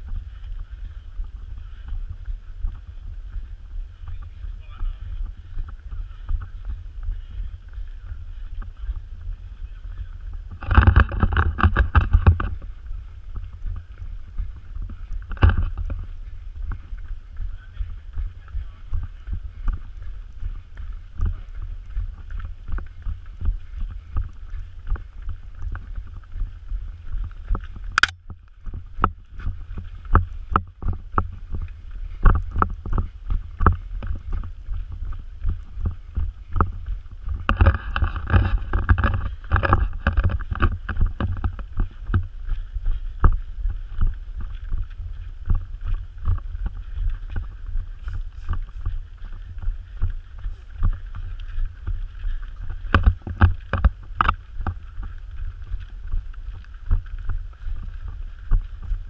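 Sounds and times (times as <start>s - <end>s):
footsteps on dirt trail: 0.0s - 59.0s
low microphone rumble: 0.0s - 59.0s
sharp click: 28.0s - 28.2s.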